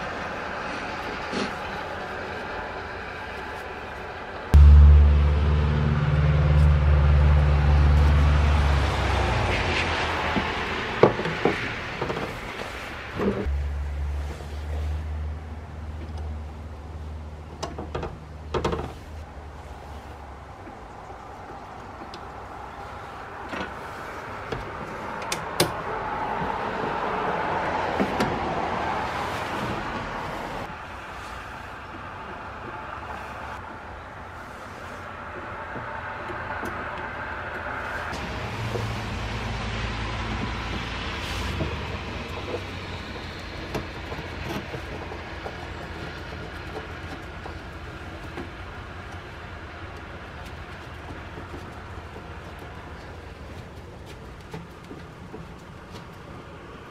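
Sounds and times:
loud low hum: 0:04.5 - 0:09.8
rushing noise: 0:04.5 - 0:15.0, 0:34.3 - 0:44.5.

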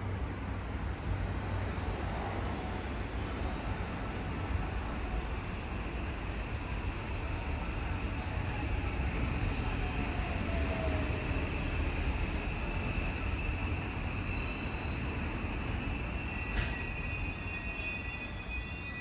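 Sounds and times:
train rumbling: 0:00.0 - 0:19.0
high-pitched brake squeal: 0:07.3 - 0:19.0.

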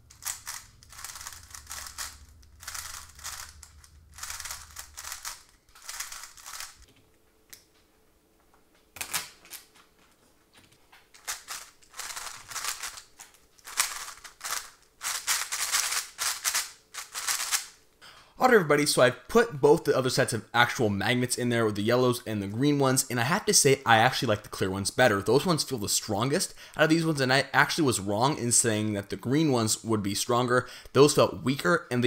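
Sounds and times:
puzzle cube plastic clicking: 0:00.1 - 0:06.9.

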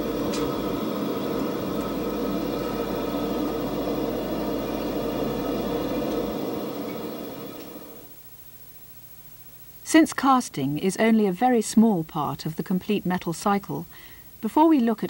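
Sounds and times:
furnace fire roaring: 0:00.0 - 0:08.2.

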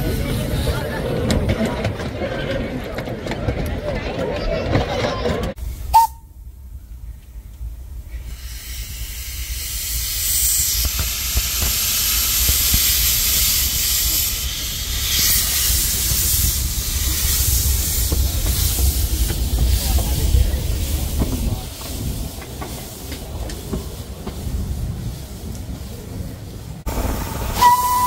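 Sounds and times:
steam locomotive hissing steam: 0:08.0 - 0:28.0
steady low rumble: 0:12.4 - 0:27.6.

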